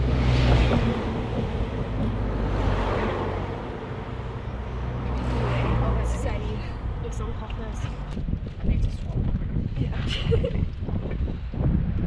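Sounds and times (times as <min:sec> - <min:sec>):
vehicle passing by: 0:00.0 - 0:08.2
steady low rumble: 0:00.0 - 0:12.0.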